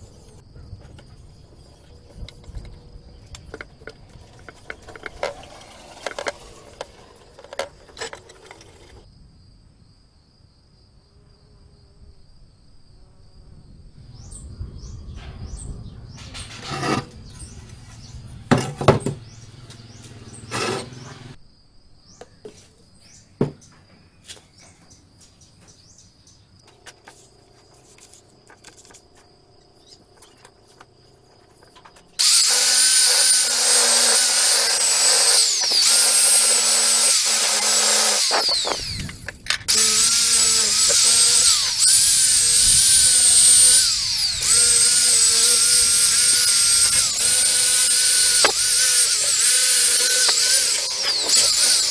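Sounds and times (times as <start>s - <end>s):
electric drill buffing whine: 3.4s - 9.0s, 16.4s - 21.4s, 30.2s - 51.9s.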